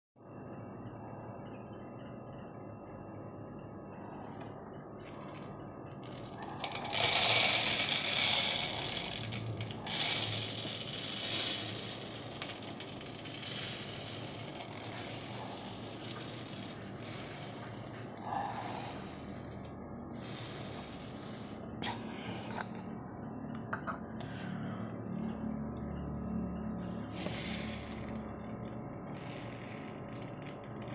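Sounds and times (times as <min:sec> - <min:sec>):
rice pouring into plastic bowl: 0:05.0 - 0:21.6, 0:27.1 - 0:30.9.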